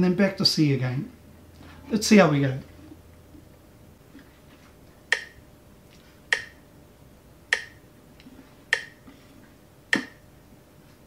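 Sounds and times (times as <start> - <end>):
metronome clicking: 5.1 - 5.4, 6.3 - 6.6, 7.5 - 7.8, 8.7 - 9.0, 9.9 - 10.2.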